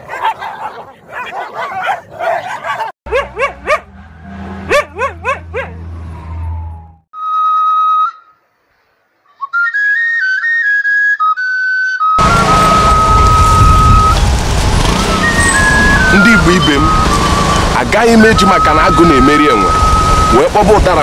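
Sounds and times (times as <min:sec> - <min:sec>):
dogs yelping: 0:00.0 - 0:03.9, 0:04.7 - 0:05.8
dogs snarling and barking: 0:00.0 - 0:04.0, 0:04.6 - 0:05.9
low hum: 0:03.1 - 0:07.0
flute-like melody: 0:06.1 - 0:08.4, 0:09.3 - 0:21.0.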